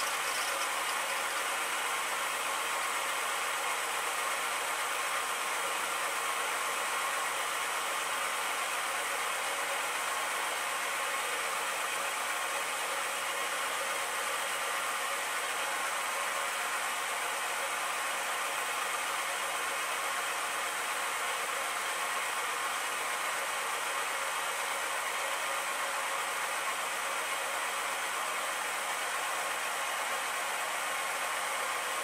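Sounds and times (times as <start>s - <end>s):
milling machine running: 0.0s - 1.8s.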